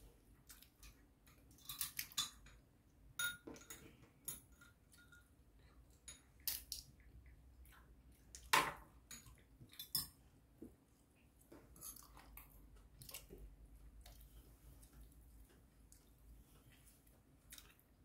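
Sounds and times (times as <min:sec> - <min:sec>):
chewing: 0:11.8 - 0:18.0.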